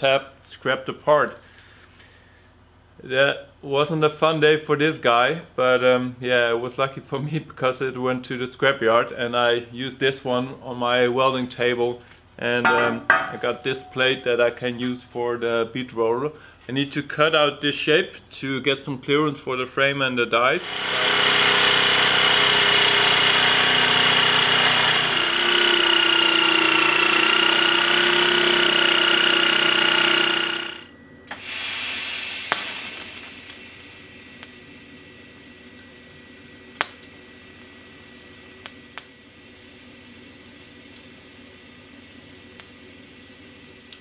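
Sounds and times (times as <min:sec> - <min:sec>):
jigsaw cutting metal: 0:20.6 - 0:30.9
welding hum: 0:20.6 - 0:44.0.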